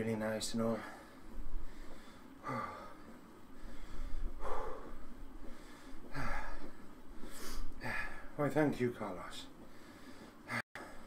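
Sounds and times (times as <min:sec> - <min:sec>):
man breathing heavily: 0:00.6 - 0:08.4, 0:09.6 - 0:11.0
hard exhalations: 0:00.8 - 0:08.4.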